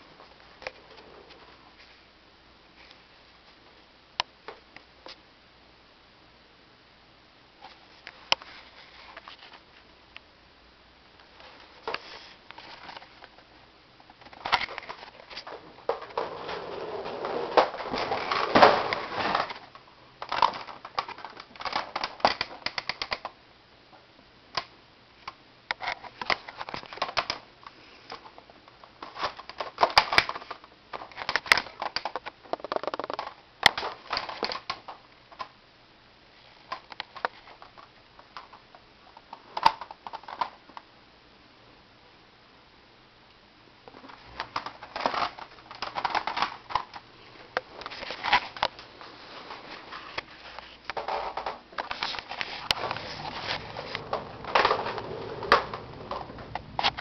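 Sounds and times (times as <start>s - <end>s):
rustling and scraping: 7.6s - 9.9s, 11.4s - 13.4s, 14.2s - 19.7s, 43.9s - 57.0s.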